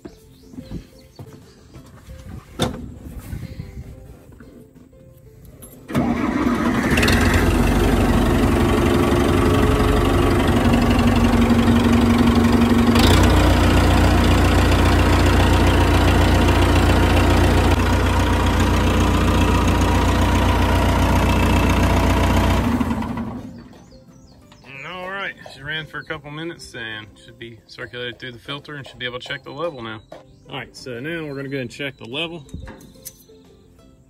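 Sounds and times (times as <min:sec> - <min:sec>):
diesel engine starting and running: 0:05.8 - 0:24.6.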